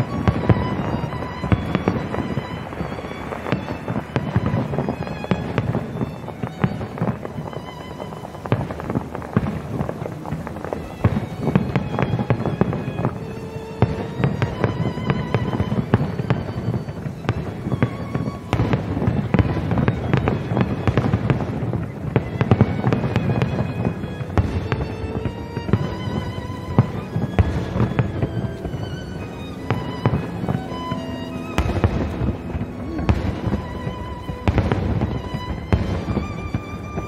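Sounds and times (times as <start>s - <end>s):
firework shells bursting: 0.0s - 37.0s
music playing: 0.0s - 37.0s.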